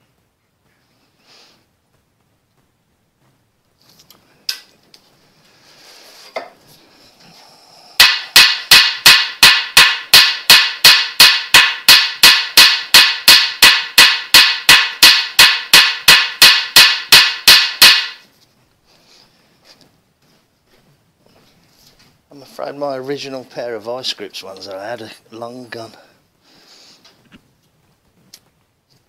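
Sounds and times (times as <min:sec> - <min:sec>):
hammer striking metal bolt: 0:08.0 - 0:18.2.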